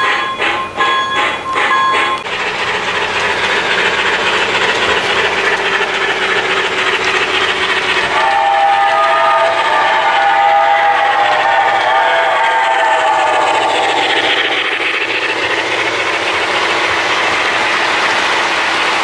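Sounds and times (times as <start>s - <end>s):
steam locomotive chime whistle: 0.0s - 2.3s, 8.1s - 14.4s
model train wheels running: 0.0s - 19.0s.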